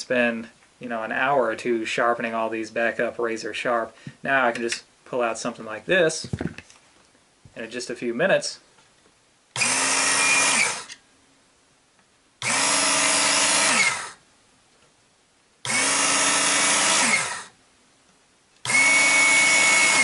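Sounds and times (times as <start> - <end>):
belt sharpener motor whining: 9.6 - 11.0, 12.4 - 14.2, 15.6 - 17.5, 18.6 - 20.0.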